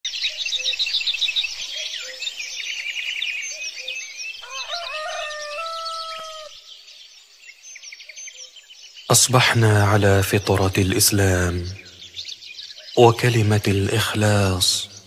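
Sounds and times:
small birds chirping: 0.1 - 15.0
rooster crowing: 4.4 - 6.6.

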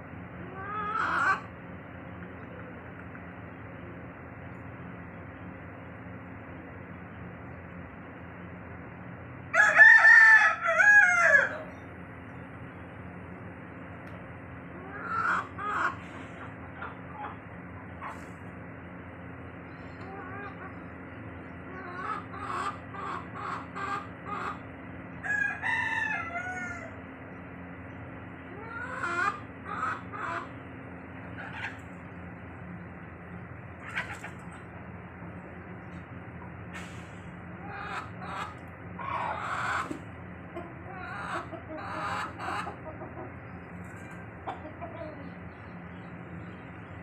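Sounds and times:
steady low hum: 0.0 - 47.0
chickens clucking: 0.4 - 3.4, 13.7 - 47.0
rooster crowing: 9.5 - 11.7, 25.2 - 27.0.

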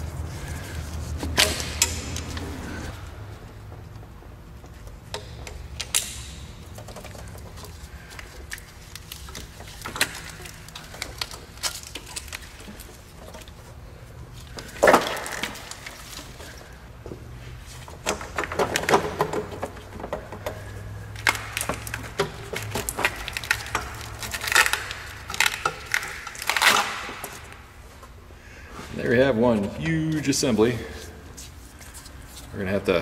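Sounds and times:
plastic and rubber parts rattling: 17.7 - 27.5.

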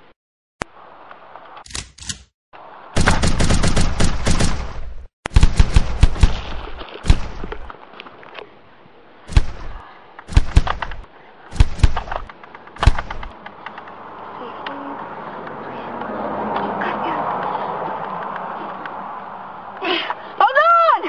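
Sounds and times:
automatic gunfire: 3.0 - 7.7, 9.3 - 13.3
single gunshots: 3.0 - 7.7, 9.3 - 13.4.

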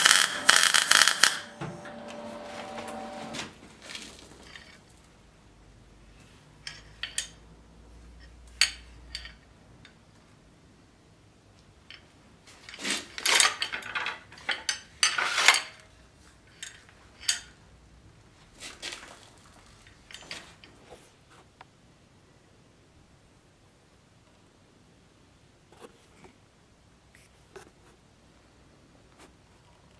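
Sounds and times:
sword fittings clinking and rattling: 12.6 - 15.8.

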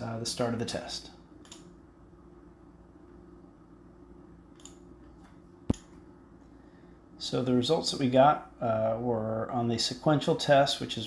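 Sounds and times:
low steady hum: 0.0 - 11.0
sharp click: 4.6 - 4.8, 5.7 - 6.0.

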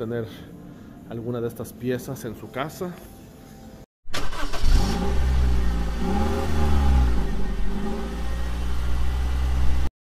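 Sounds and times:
car engine revving: 4.2 - 9.9.

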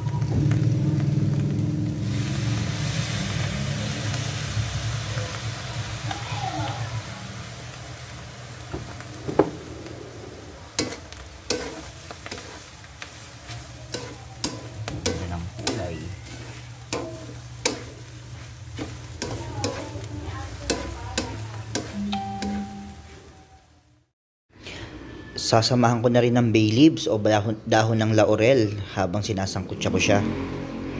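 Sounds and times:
meat sizzling: 0.0 - 23.7
spatula scraping a wok: 10.8 - 23.3.

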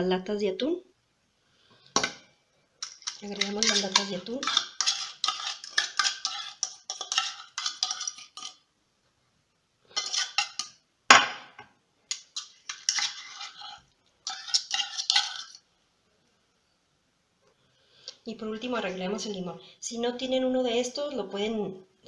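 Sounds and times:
metal spoon scraping tin can: 2.8 - 8.6, 9.9 - 10.8, 12.1 - 15.6.

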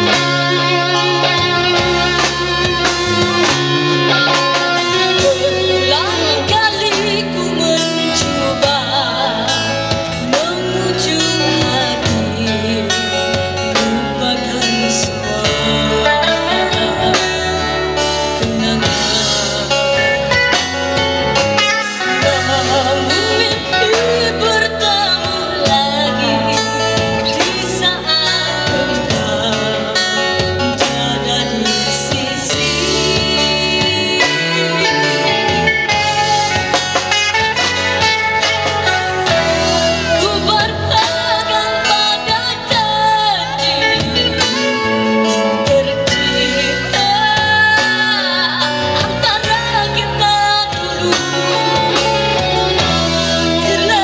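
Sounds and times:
girl singing into microphone: 0.0 - 20.2, 21.8 - 36.3, 39.2 - 54.0
acoustic guitar: 0.0 - 54.0
bass guitar: 0.0 - 54.0
drum kit beat: 0.0 - 54.0
electric guitar: 0.0 - 54.0.

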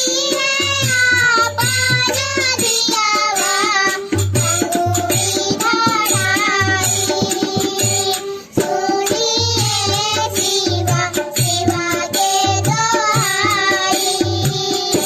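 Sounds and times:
girls singing in unison: 0.0 - 15.0
harmonium: 0.0 - 15.0.

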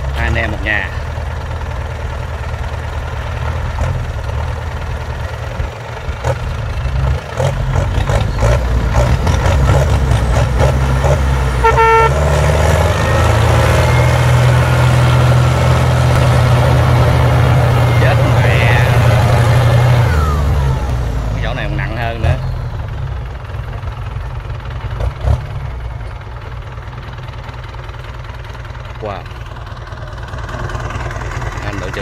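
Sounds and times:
tractor diesel engine straining: 0.0 - 32.0
horn toot: 11.6 - 12.4.

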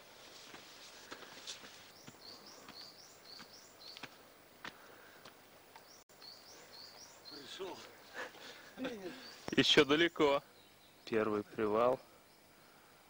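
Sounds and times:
footsteps on dirt trail: 0.0 - 8.0
songbird singing: 1.1 - 13.0.

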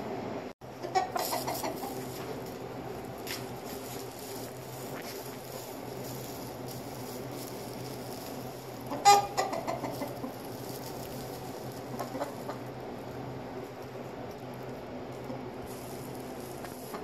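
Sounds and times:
steady low hum: 0.0 - 17.0
chicken squawking: 0.7 - 2.1, 8.8 - 12.8
chicken clucking: 0.7 - 2.3, 8.8 - 12.8.

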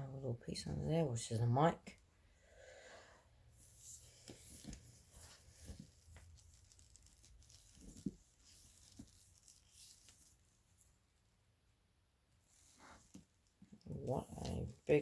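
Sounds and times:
soft handling rustles: 3.6 - 11.3.

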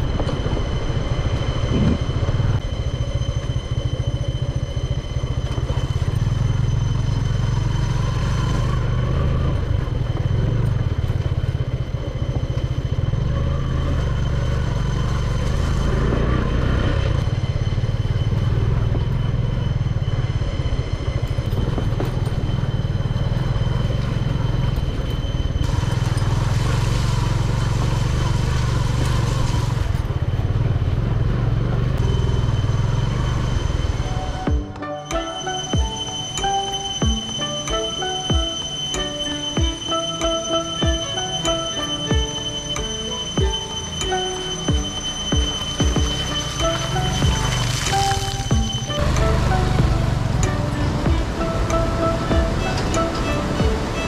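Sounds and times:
motorcycle engine running: 0.0 - 40.0, 40.8 - 54.0.

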